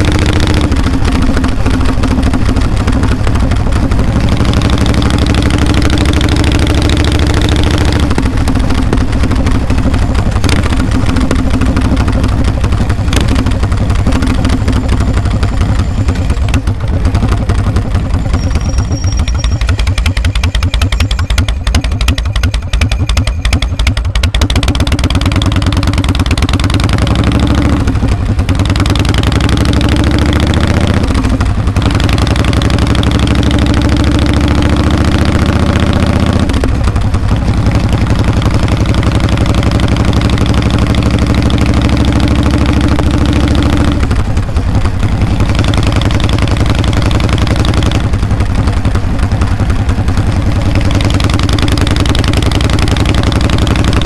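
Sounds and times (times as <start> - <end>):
motorcycle engine exhaust beat: 0.0 - 54.0.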